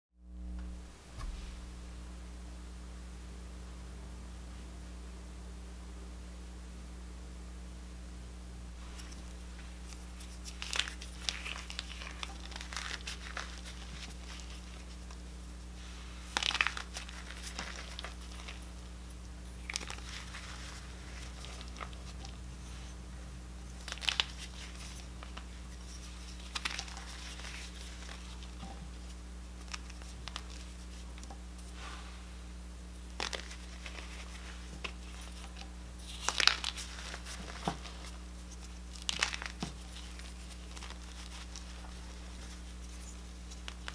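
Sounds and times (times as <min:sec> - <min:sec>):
chalk crunching between fingers: 0:08.8 - 0:23.0, 0:33.1 - 0:43.9.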